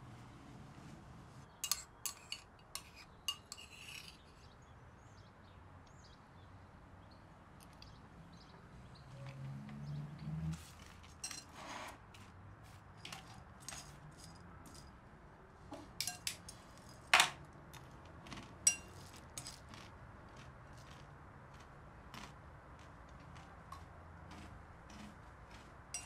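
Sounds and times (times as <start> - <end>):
spoon clinking against bowl: 1.6 - 4.2, 16.0 - 17.4, 18.7 - 19.6.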